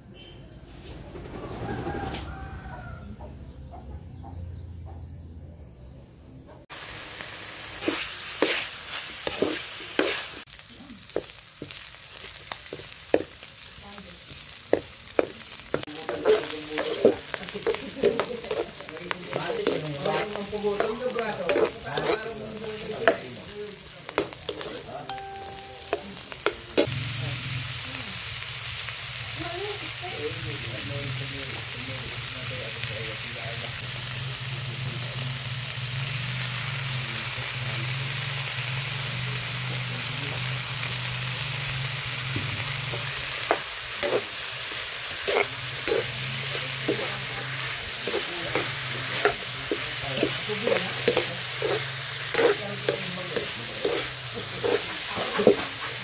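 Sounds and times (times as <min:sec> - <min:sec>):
food sizzling in hot oil: 0:06.6 - 0:56.0
metal spoon scraping a pan: 0:07.7 - 0:10.4, 0:14.8 - 0:25.0, 0:42.6 - 0:56.0.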